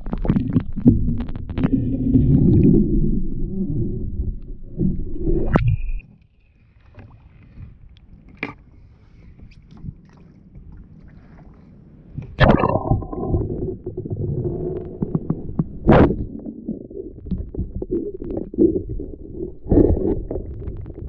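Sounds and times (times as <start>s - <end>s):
muffled underwater rumble: 0.0s - 6.0s, 6.6s - 21.0s.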